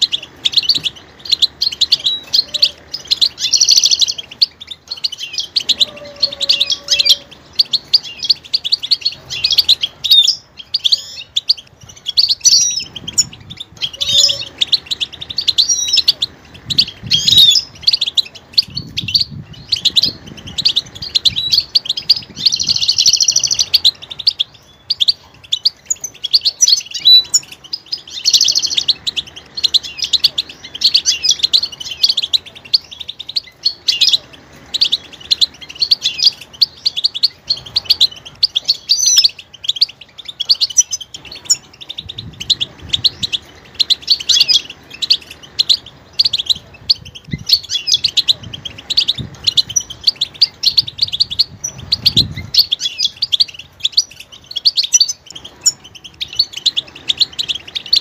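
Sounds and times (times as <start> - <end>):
finch singing: 0.0 - 58.0.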